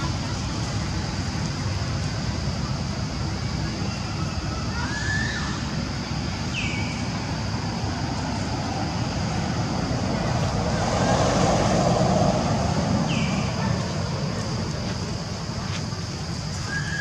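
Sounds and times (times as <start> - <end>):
low rumble and hiss: 0.0 - 17.0
faint short high calls: 3.8 - 5.8, 16.6 - 17.0.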